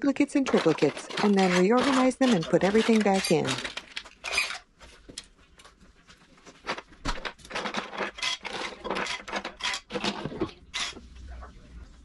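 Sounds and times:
plastic utensils clattering on wood: 0:00.2 - 0:05.2, 0:06.6 - 0:11.0.

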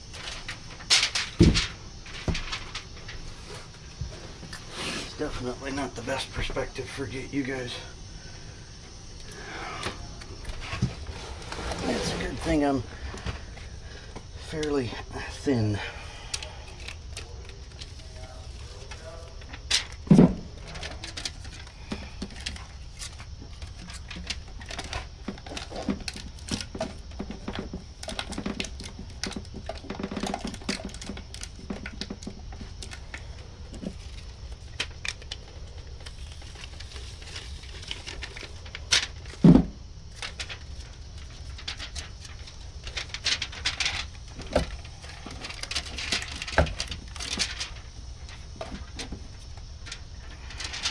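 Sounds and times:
clicks rustles and light knocks: 0:00.1 - 0:04.6, 0:16.4 - 0:50.9
loud thumps: 0:00.9 - 0:02.6.

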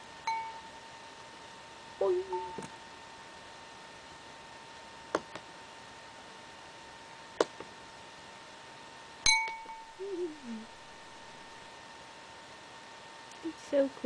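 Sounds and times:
object clinking on glass bowl: 0:00.3 - 0:00.7, 0:09.3 - 0:09.9.

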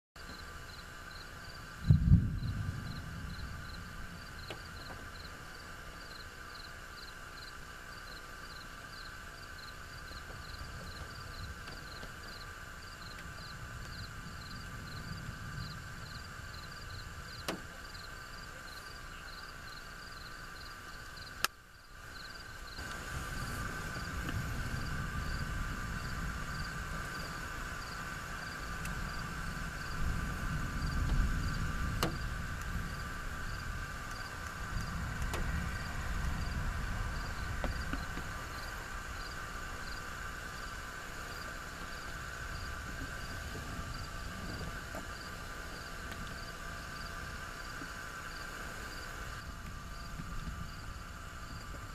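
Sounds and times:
insects chirping: 0:00.2 - 0:51.9
low rumble: 0:01.4 - 0:06.5, 0:09.8 - 0:19.0, 0:22.5 - 0:47.7.

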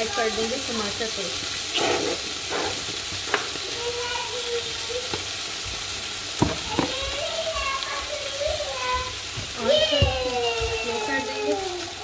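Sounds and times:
meat sizzling in a pan: 0:00.0 - 0:12.0
sharp knocks against pan: 0:06.4 - 0:06.9.

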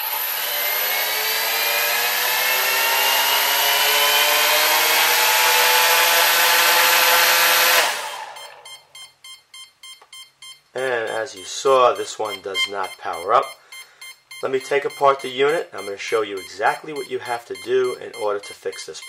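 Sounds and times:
drone motors whirring: 0:00.0 - 0:08.7
rapid short beeps: 0:08.4 - 0:19.0.

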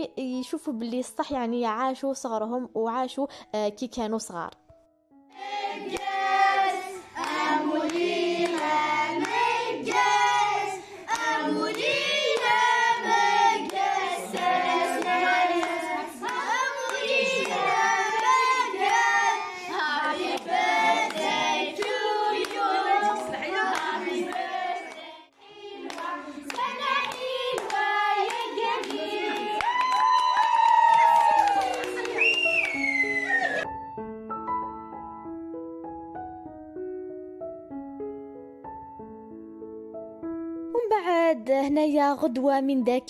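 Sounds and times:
people singing a birthday song: 0:05.4 - 0:29.6
hands clapping: 0:05.8 - 0:06.6, 0:07.2 - 0:10.2, 0:11.1 - 0:19.2, 0:19.8 - 0:25.0, 0:25.8 - 0:33.6.

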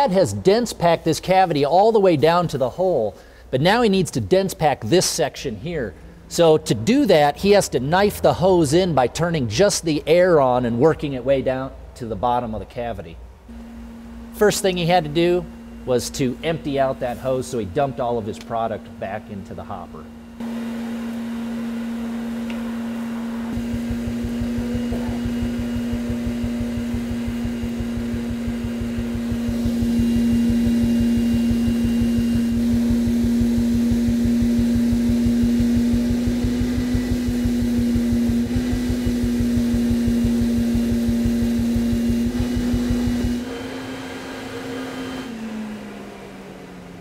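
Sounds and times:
insulation blowing machine hum: 0:13.2 - 0:47.0
low rapid pulsing: 0:13.5 - 0:43.5.

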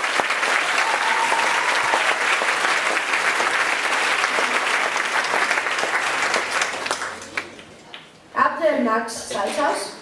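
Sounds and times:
audience applause: 0:00.0 - 0:07.8.

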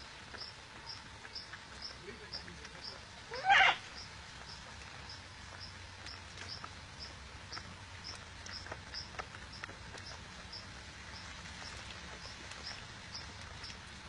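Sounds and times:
faint insect chirping: 0:00.0 - 0:13.9
soft clicks and rustles: 0:04.0 - 0:14.0.

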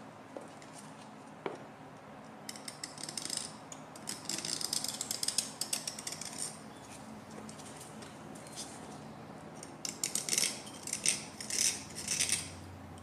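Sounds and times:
knife blade scraping metal: 0:09.6 - 0:12.6.

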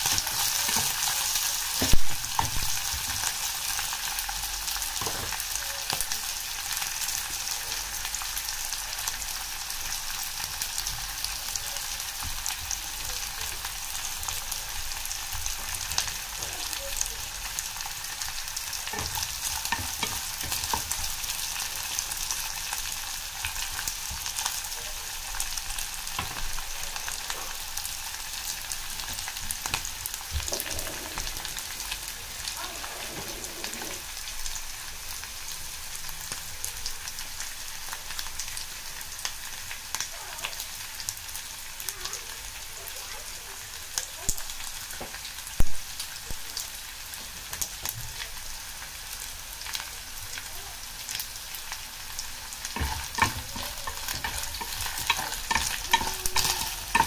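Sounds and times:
fish sizzling in hot oil: 0:00.0 - 0:57.0
wooden spoon stirring: 0:30.2 - 0:34.3, 0:52.6 - 0:57.0.

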